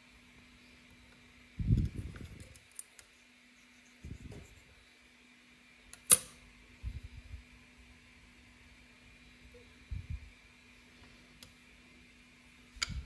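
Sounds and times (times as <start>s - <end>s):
faint steady hum: 0.0s - 13.0s
sharp click: 5.9s - 6.4s.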